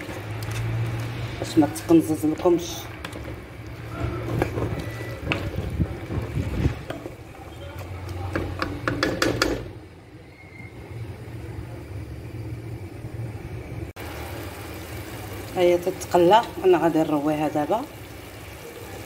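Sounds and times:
wooden spoon scraping a pot: 0.0 - 8.9
beans frying in a pot: 0.0 - 9.7, 11.4 - 19.0.

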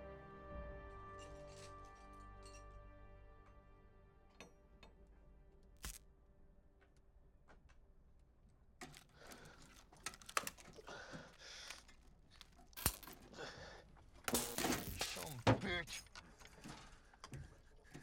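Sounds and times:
metallic clicks and clinks: 11.7 - 13.3.

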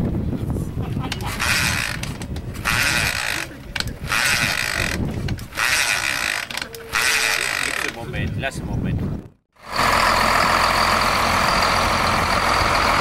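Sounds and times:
motorcycle kick-start rasp: 1.2 - 8.0.

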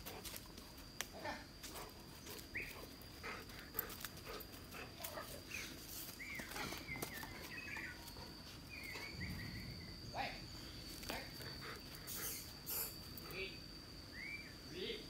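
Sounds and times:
high-pitched insect drone: 0.0 - 15.0
short high chirping calls: 12.1 - 13.0, 14.1 - 14.6.

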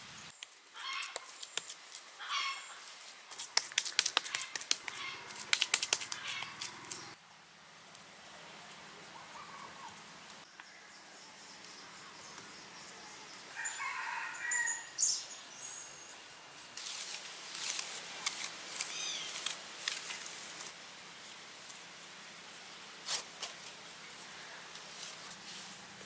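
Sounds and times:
scrapes and rustles: 16.8 - 26.0.

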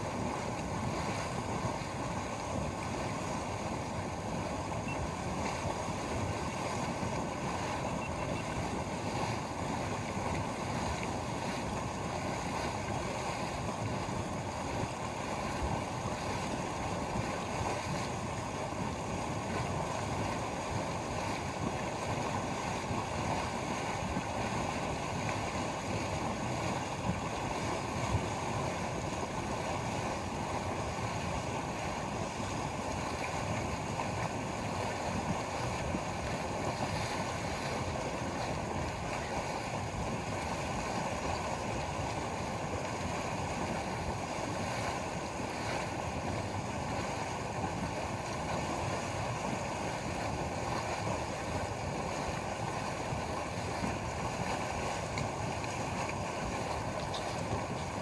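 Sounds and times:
steam venting from mud pool: 0.0 - 58.0.

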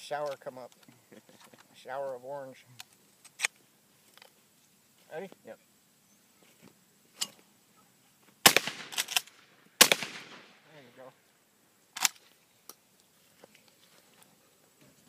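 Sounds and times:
shotgun shots echoing: 8.4 - 10.6.

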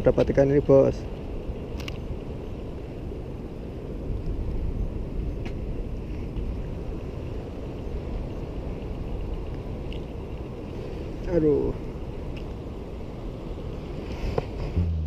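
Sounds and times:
wind: 0.0 - 15.0
sea surf: 0.7 - 15.0
faint clicks: 1.7 - 2.3, 7.8 - 10.8, 12.3 - 12.6.

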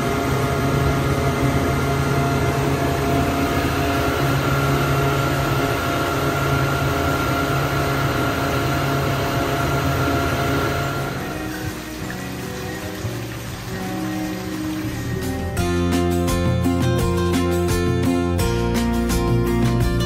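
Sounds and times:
water rushing from boat wake: 0.0 - 15.6
outboard motor running: 0.0 - 19.1.

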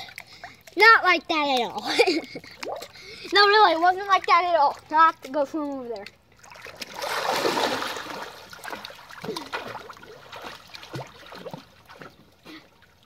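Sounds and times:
water splashing and sloshing: 0.0 - 13.0
child plunging into pool: 6.4 - 12.8.

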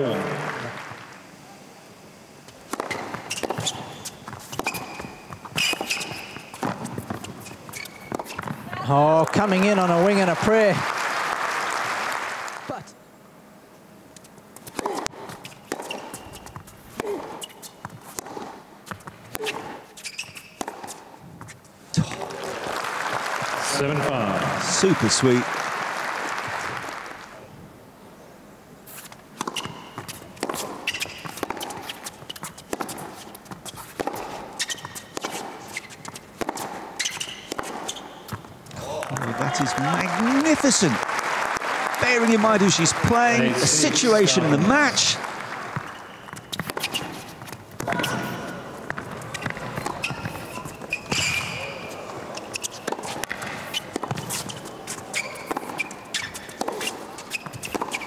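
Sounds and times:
shoes squeaking: 2.5 - 9.8, 14.1 - 22.3, 28.9 - 41.0, 42.0 - 58.0
racket striking tennis ball: 2.7 - 8.8, 14.6 - 19.9, 20.5 - 21.1, 29.0 - 38.4, 45.7 - 58.0
footsteps on court: 28.9 - 41.1, 41.8 - 58.0.

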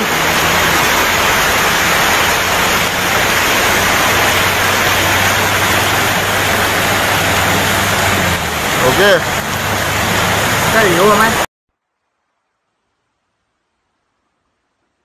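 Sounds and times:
low engine hum: 0.0 - 11.4
floodwater rushing: 0.0 - 11.5.

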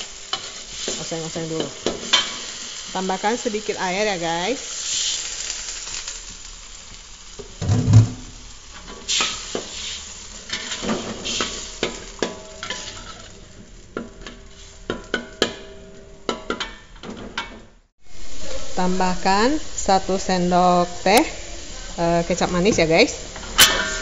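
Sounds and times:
paste sizzling in a wok: 0.0 - 17.0, 18.0 - 24.0
heavy thump: 7.6 - 8.4
metal spatula scraping a wok: 7.6 - 13.4, 23.4 - 24.0.

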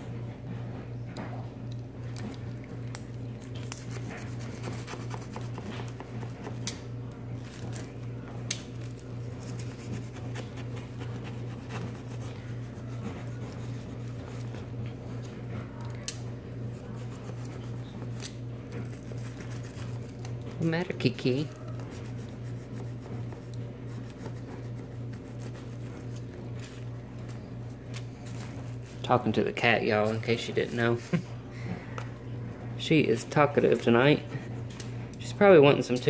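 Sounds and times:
steady low hum: 0.0 - 36.0
blade scratching through clay: 3.7 - 6.6.

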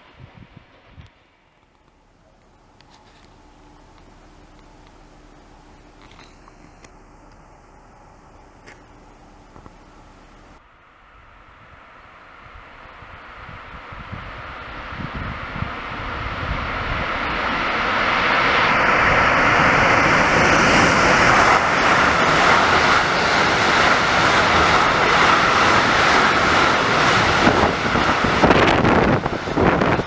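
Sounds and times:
train wheels on rails: 14.6 - 30.0.

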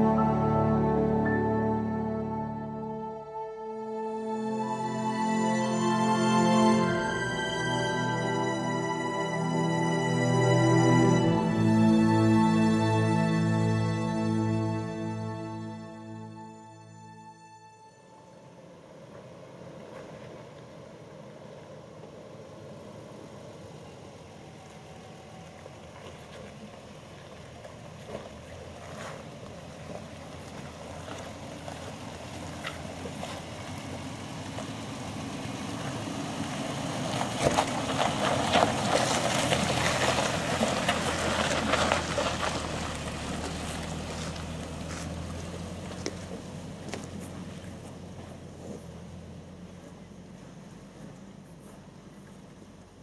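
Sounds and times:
off-road vehicle engine passing: 18.2 - 53.0
stones crunching under tyres: 19.0 - 52.9.

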